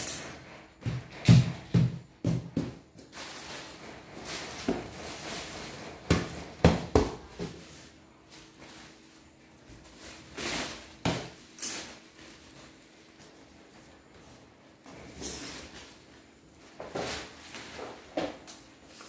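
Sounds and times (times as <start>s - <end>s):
plastic sheet rustling: 2.8s - 19.0s.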